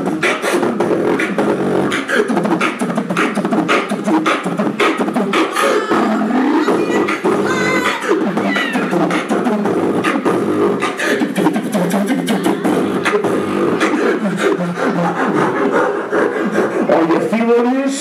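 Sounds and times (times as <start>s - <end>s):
beatboxing into a microphone: 0.0s - 18.0s.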